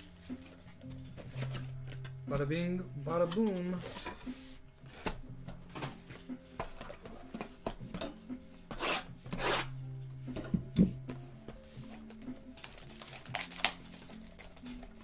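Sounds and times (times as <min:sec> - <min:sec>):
cardboard rasping rubs: 0:08.7 - 0:09.7.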